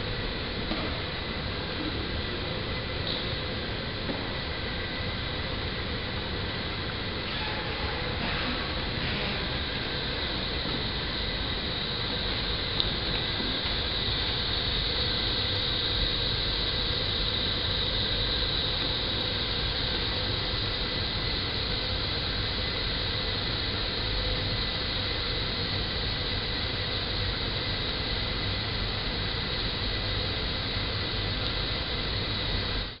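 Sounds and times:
electronic hiss and drone: 0.0 - 33.0.

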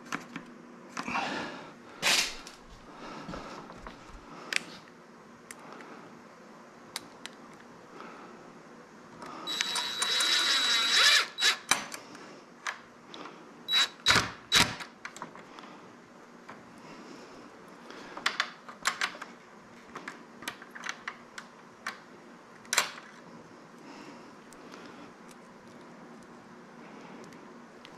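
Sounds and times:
cordless drill whining: 9.4 - 11.7, 13.7 - 14.8.

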